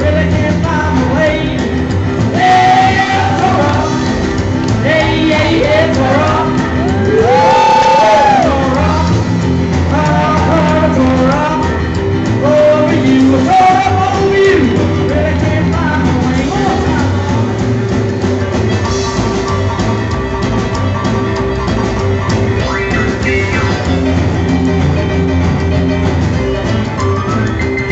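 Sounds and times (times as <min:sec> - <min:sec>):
man singing: 0:00.0 - 0:17.9, 0:23.0 - 0:24.1
drum kit: 0:00.0 - 0:27.9
keyboard played piano-style: 0:00.0 - 0:27.9.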